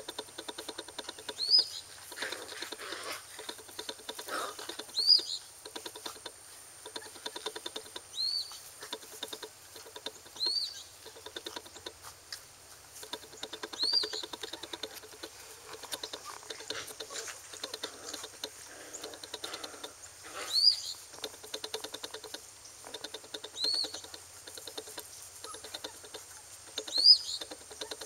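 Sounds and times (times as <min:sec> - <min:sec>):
puppy claws pattering on concrete: 0:08.8 - 0:20.0.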